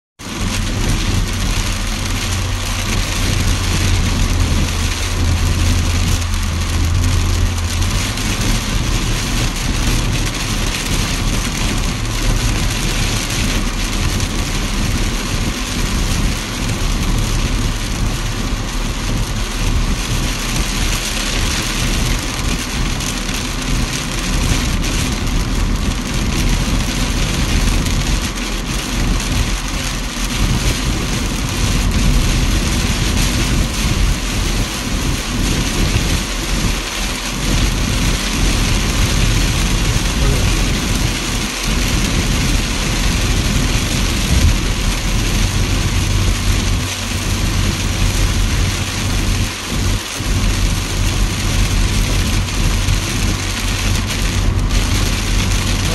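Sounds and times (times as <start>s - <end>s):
car engine and tyres rumbling: 0.2s - 55.9s
heavy rain beating on car: 0.2s - 55.9s
low drone: 38.6s - 41.3s.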